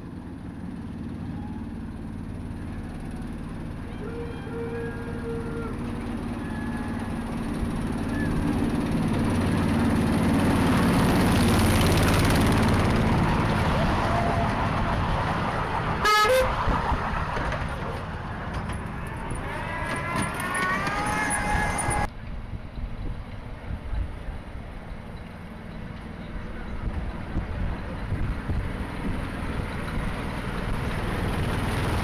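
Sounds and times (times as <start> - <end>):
train wheels rumbling on track: 0.0 - 32.0
short horn toot: 16.0 - 16.6.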